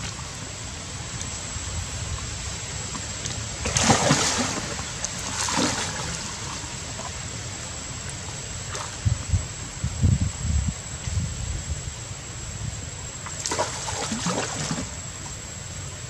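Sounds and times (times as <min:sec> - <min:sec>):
steady wash of water: 0:00.0 - 0:09.6, 0:13.2 - 0:15.4
monkeys splashing in water: 0:03.6 - 0:06.6, 0:13.4 - 0:15.0.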